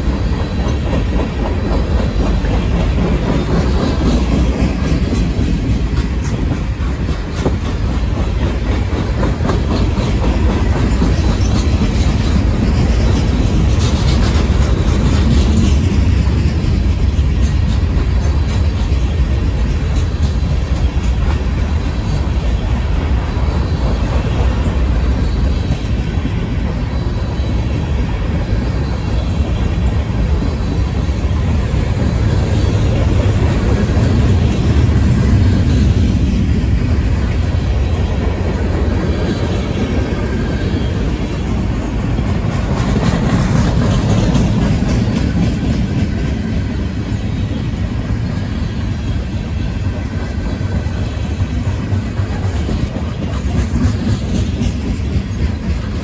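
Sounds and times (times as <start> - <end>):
freight train rumbling past: 0.0 - 56.0
train wheels clattering: 0.0 - 56.0.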